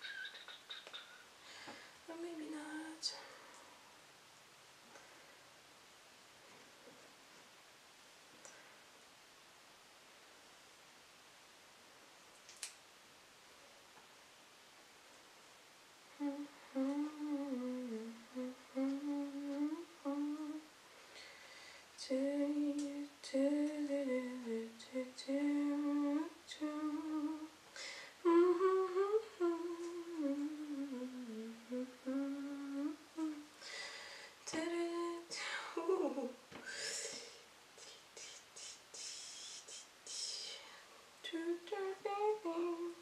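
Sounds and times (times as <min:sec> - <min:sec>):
woman humming a melody: 0:16.1 - 0:20.7, 0:22.0 - 0:27.6, 0:28.2 - 0:33.5, 0:34.5 - 0:40.6, 0:41.2 - 0:43.0.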